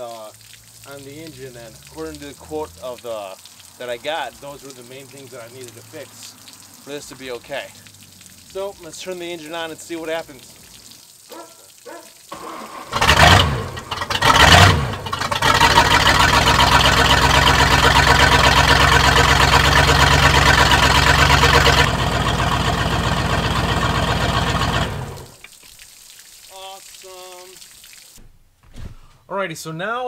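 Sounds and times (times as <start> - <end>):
boat engine starting and running: 12.3 - 25.4.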